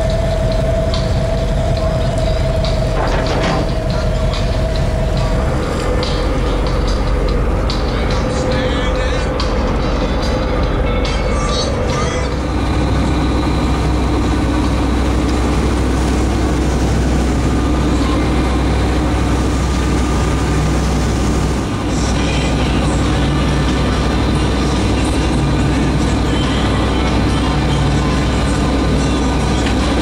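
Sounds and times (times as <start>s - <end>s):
boat engine running: 0.0s - 30.0s
water washing: 0.0s - 30.0s.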